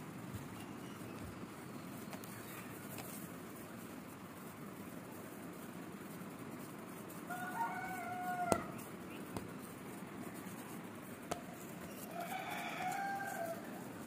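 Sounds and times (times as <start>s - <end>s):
long held bird calls: 0.4s - 2.9s.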